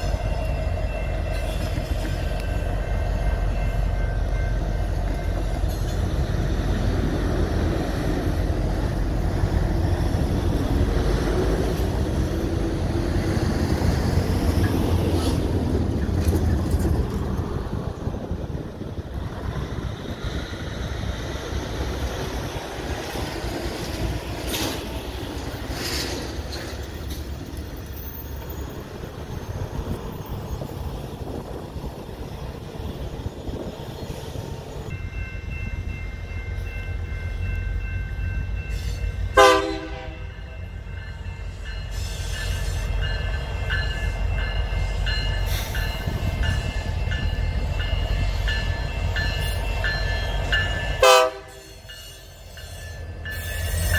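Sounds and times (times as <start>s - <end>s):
locomotive horn blast: 39.3s - 40.4s, 51.0s - 51.8s.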